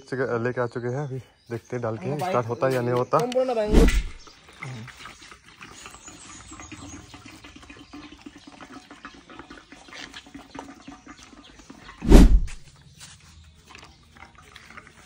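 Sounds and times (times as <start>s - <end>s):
petrol trickling into fuel tank: 2.3s - 12.0s, 12.7s - 15.0s.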